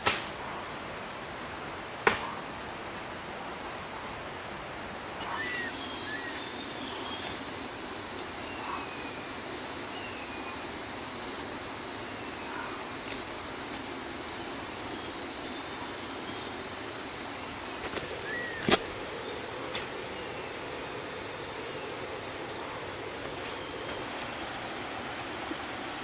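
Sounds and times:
wood fibres snapping: 0.0s - 0.3s, 17.8s - 19.1s, 19.7s - 20.0s
high insect drone: 0.0s - 26.0s.

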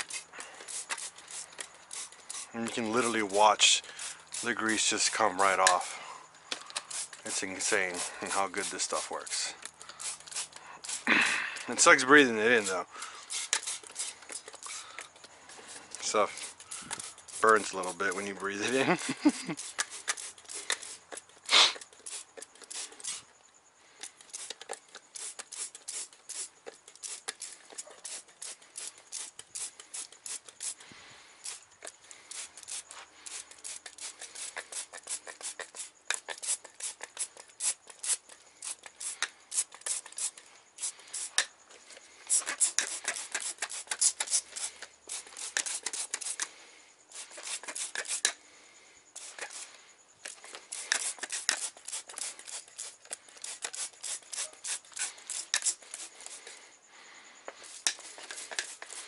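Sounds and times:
scratching and rubbing: 0.0s - 5.9s, 6.8s - 9.4s, 11.7s - 23.3s, 31.5s - 46.5s, 47.1s - 48.4s, 49.2s - 56.6s, 57.6s - 59.0s.

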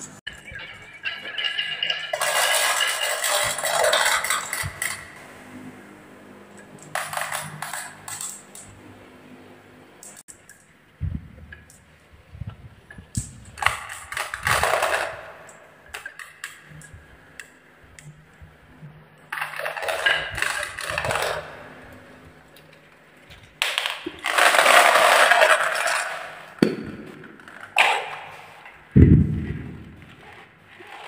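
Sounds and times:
glass marbles rolling down wooden run: 0.3s - 5.2s, 24.2s - 26.4s.

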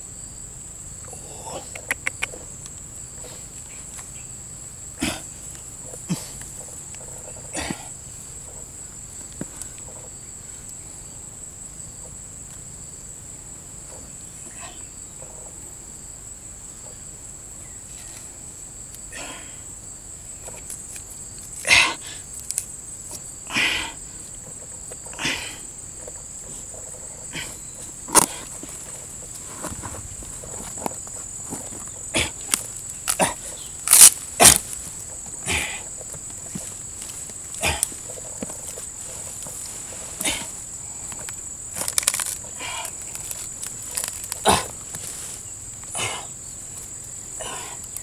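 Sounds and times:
insect drone: 0.0s - 48.0s
rustling and crackling of tearing fibre: 22.3s - 22.7s, 33.8s - 35.0s, 41.1s - 45.4s.

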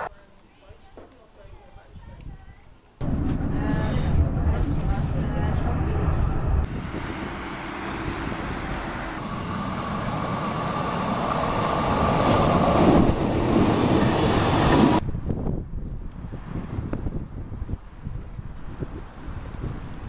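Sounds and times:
street noise: 0.0s - 17.3s
electric train running: 3.0s - 15.0s.

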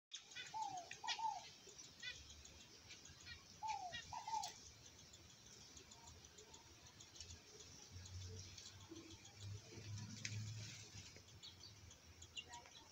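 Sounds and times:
faint high chirping: 0.1s - 12.9s
dove cooing: 0.3s - 2.2s, 3.3s - 4.6s.

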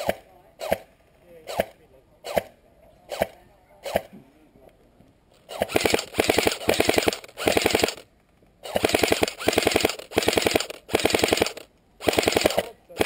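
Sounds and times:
airsoft gun bursts: 5.5s - 13.0s.

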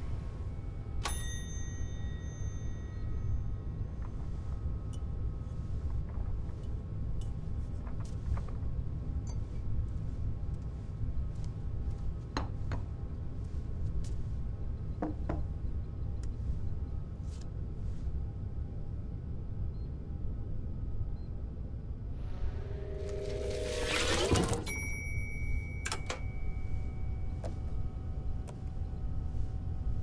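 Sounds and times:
low rumbling drone: 22.0s - 24.6s.

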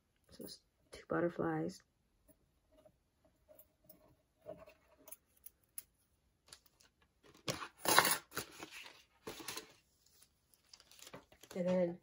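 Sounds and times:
plastic sleeve crinkling: 7.9s - 12.0s.

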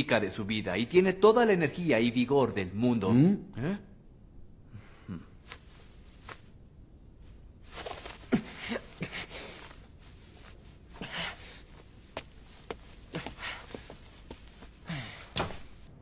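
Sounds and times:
man breathing heavily: 8.3s - 16.0s.

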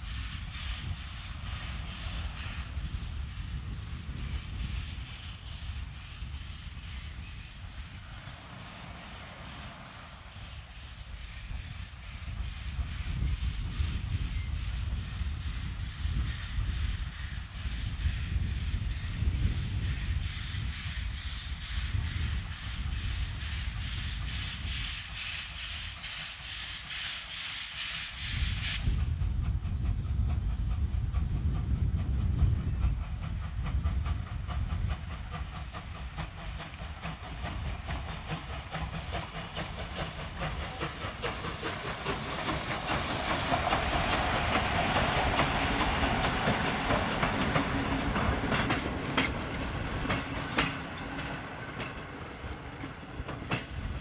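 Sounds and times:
wind rumble on microphone: 0.0s - 8.4s, 10.4s - 25.0s, 28.2s - 38.8s
steam hiss: 0.0s - 54.0s
steam locomotive exhaust beats: 0.0s - 54.0s
wheels clicking over rail joints: 34.0s - 54.0s.

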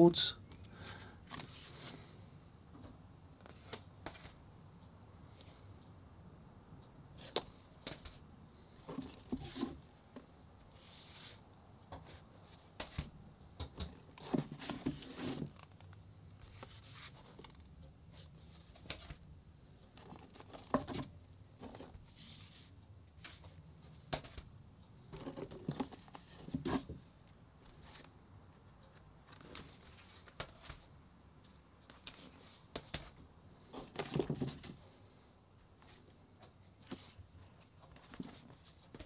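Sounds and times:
cardboard record sleeves rustling: 1.3s - 2.1s, 3.4s - 4.4s, 7.2s - 13.2s, 14.0s - 24.4s, 25.0s - 31.0s, 31.8s - 35.2s, 35.8s - 39.0s.

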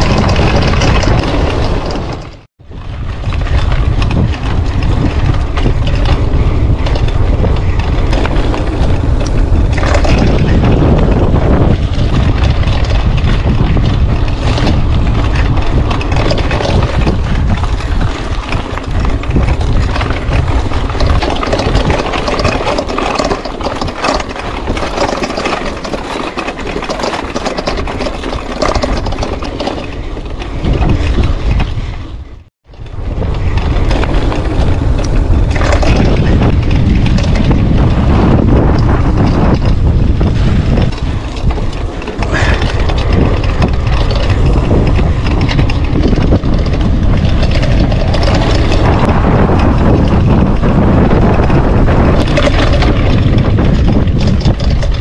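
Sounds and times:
bike rattling over bumps: 0.0s - 55.0s
wind buffeting the microphone: 0.0s - 55.0s
tyres crunching on gravel: 33.1s - 54.3s.

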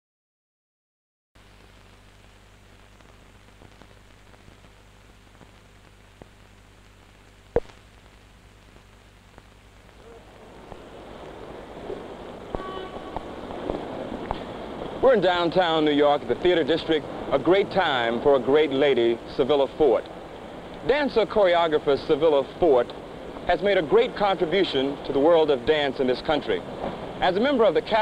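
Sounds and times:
faint crackle: 1.4s - 15.6s, 22.8s - 24.2s
film soundtrack hiss and hum: 1.4s - 28.0s
sharp pop: 7.5s - 7.8s.

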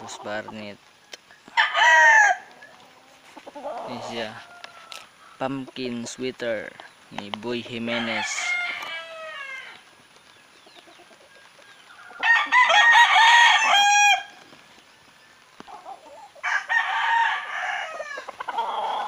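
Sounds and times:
rooster crowing: 1.5s - 5.4s, 7.7s - 9.8s, 12.0s - 14.4s, 15.8s - 19.0s
quieter rooster call: 7.7s - 9.8s, 11.9s - 14.4s, 15.8s - 19.0s.

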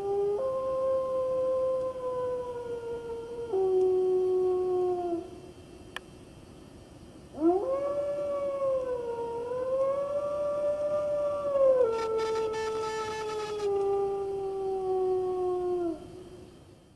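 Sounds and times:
wolf howling: 7.4s - 16.1s.

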